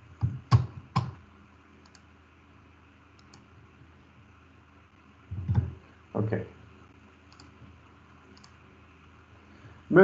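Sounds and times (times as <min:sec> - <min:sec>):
computer mouse clicks: 0:01.8 - 0:02.1, 0:03.1 - 0:03.5, 0:07.3 - 0:07.6, 0:08.3 - 0:08.6.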